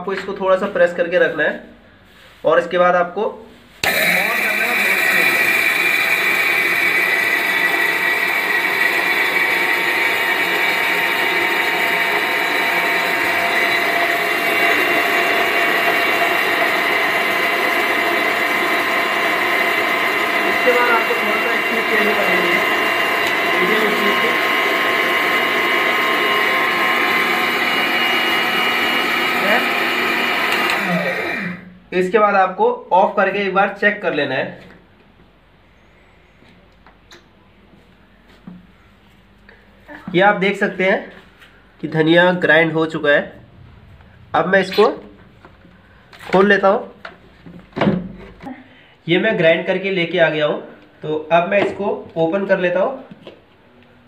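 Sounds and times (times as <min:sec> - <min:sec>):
mixer grinder running: 0:03.8 - 0:31.8.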